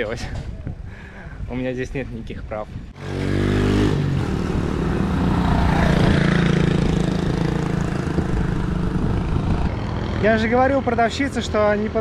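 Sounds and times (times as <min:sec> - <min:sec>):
road and wind noise: 0:00.0 - 0:12.0
motorbike engine overtaking: 0:03.0 - 0:11.5.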